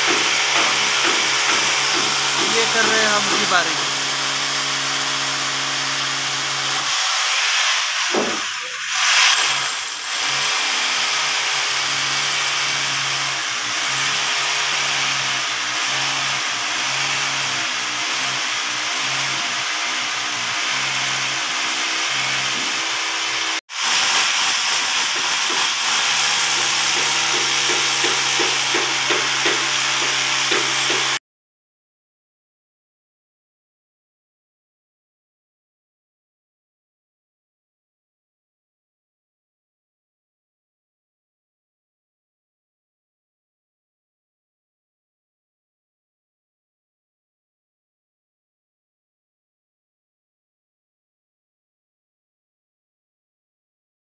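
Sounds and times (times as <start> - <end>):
hammer drill boring into concrete: 0.0 - 31.2.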